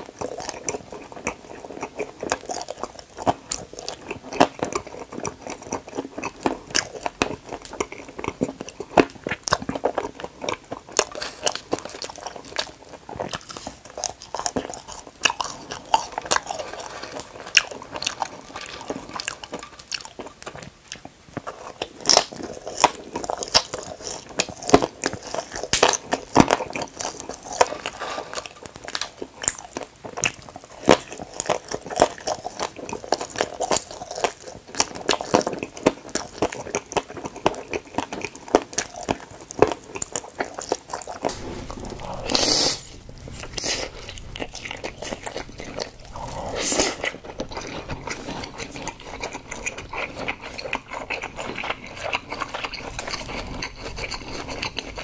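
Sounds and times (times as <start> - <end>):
person chewing crunchy food: 0.0 - 42.2, 43.0 - 55.0
longer loud noises: 41.3 - 45.1.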